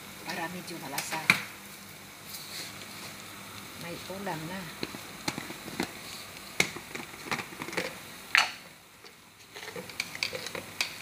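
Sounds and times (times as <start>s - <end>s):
liquid bubbling in pot: 2.7s - 11.0s.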